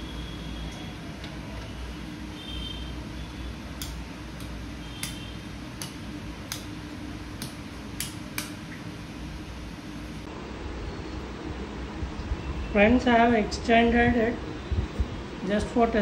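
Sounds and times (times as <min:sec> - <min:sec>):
low background hum: 0:00.0 - 0:16.0
sharp short clicks: 0:03.8 - 0:06.7.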